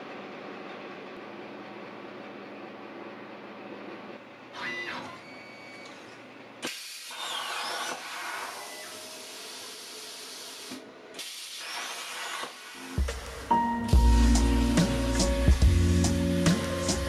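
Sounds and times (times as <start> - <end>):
plasma cutter hissing rush: 6.6 - 13.5.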